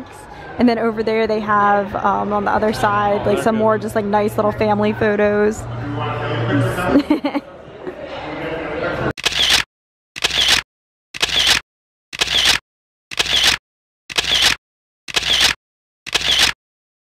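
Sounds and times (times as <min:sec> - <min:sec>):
camera shutter sound effect: 0:09.2 - 0:10.6, 0:11.2 - 0:11.6, 0:12.2 - 0:16.6.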